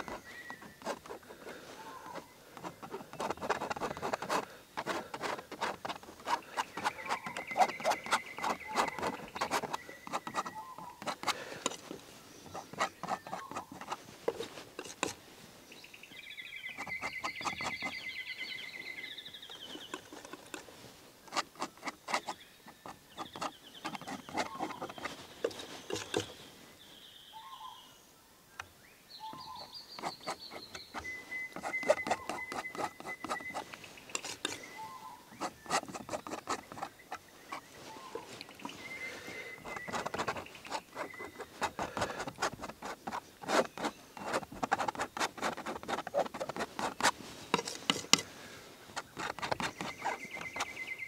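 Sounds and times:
palette knife tapping and scraping: 0.0s - 11.9s, 12.5s - 15.2s, 16.7s - 18.0s, 21.3s - 26.3s, 29.4s - 34.7s, 35.4s - 37.7s, 39.6s - 48.3s, 49.0s - 50.8s
birds trilling: 0.0s - 14.4s, 16.4s - 26.6s, 29.2s - 42.4s, 45.6s - 51.0s.

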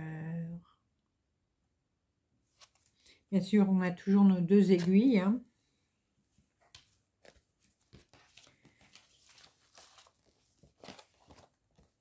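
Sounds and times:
paper crinkling and rustling: 6.6s - 12.0s.

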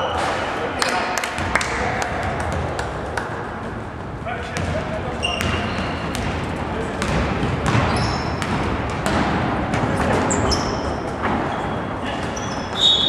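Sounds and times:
echoing hum of hall: 0.0s - 13.0s
basketball bouncing: 2.2s - 2.9s, 4.5s - 11.6s
sneakers squeaking on floor: 4.5s - 13.0s.

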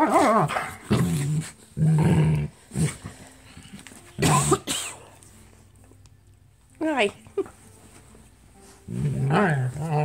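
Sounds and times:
dogs play-growling: 0.0s - 3.8s, 8.8s - 10.0s.

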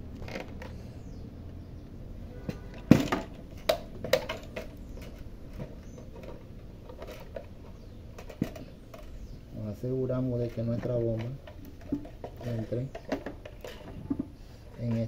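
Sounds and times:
hard plastic clicks and knocks: 10.5s - 15.0s.

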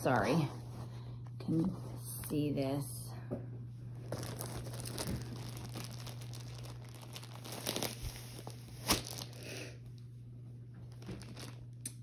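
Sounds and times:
plastic packaging crinkling: 3.9s - 9.5s, 10.8s - 12.0s
sharp plastic crackle: 4.0s - 9.5s, 10.9s - 12.0s.

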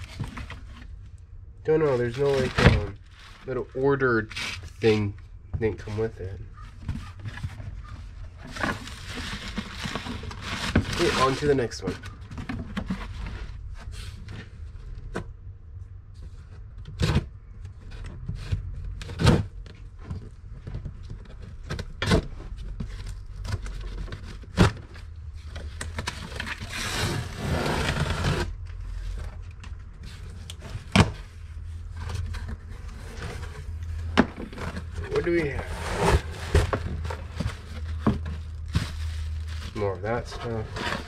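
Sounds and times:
cardboard scraping and tearing: 1.9s - 3.6s, 8.4s - 13.6s, 25.9s - 29.2s, 30.0s - 41.0s
box flaps pulled open: 34.1s - 38.0s.

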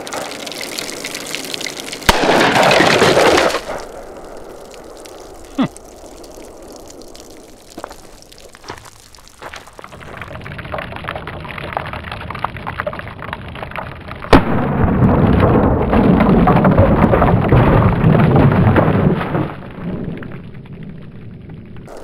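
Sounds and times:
slowed gunshot crack: 2.1s - 4.2s, 14.3s - 16.0s
low hiss with faint ticks: 3.6s - 10.5s
low rumbling boom: 9.9s - 22.0s.

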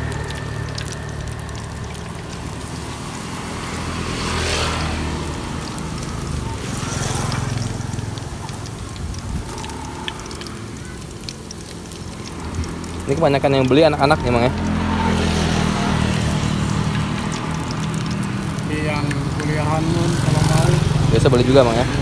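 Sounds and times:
egg sizzling in hot oil: 0.0s - 22.0s
low engine rumble: 0.0s - 22.0s.

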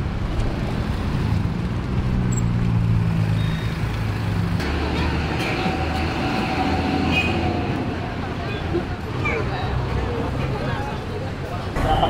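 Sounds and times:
road traffic hum: 0.0s - 12.0s
crowd chatter: 7.3s - 12.0s
people talking: 8.1s - 12.0s.

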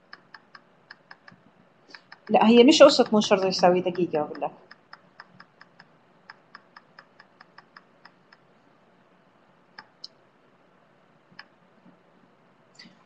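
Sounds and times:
faint computer clicks: 0.0s - 2.4s, 4.3s - 8.5s, 9.7s - 10.2s.

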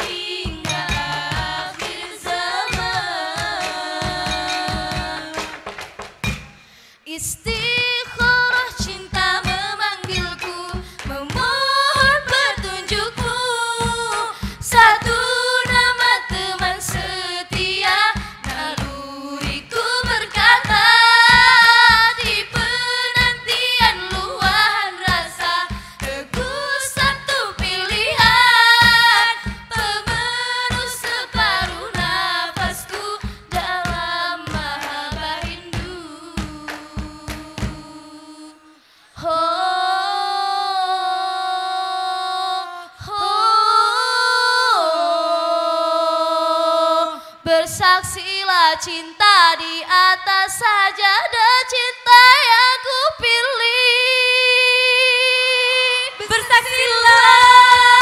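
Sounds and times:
low drum beat: 0.0s - 6.6s, 7.5s - 37.9s
women singing in a group: 0.0s - 58.0s.

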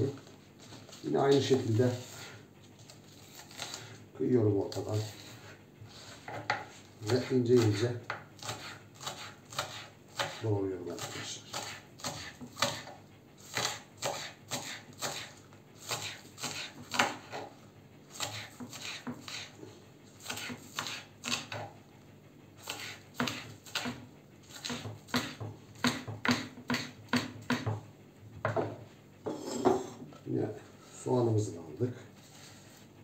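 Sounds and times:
knife chopping on wooden board: 6.2s - 17.5s, 18.1s - 19.6s, 20.2s - 21.7s, 22.6s - 27.8s, 28.4s - 29.8s.

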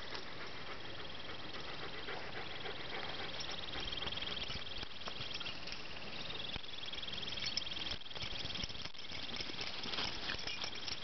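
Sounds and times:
high fast-pulsing insect trill: 2.4s - 11.0s
light rustles in grass: 3.3s - 11.0s.

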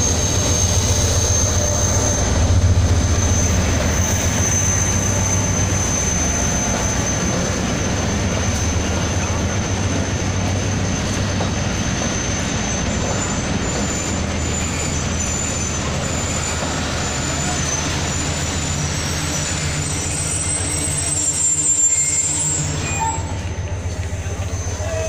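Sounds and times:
high-pitched brake squeals: 0.0s - 25.0s
train wheels rumbling on rails: 0.0s - 25.0s.

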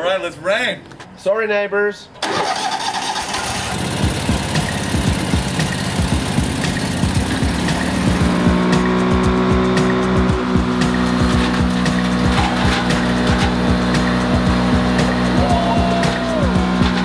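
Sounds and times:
wood chipper running: 2.2s - 17.0s
background music: 3.9s - 17.0s.

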